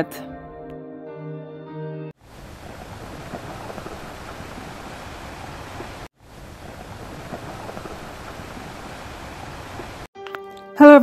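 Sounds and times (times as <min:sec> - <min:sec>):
steady rain-like hiss: 0:02.2 - 0:10.1.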